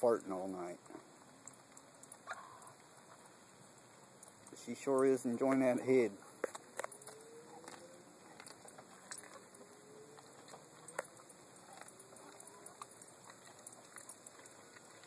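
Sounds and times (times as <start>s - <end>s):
dog teeth cracking bone: 6.4s - 15.0s.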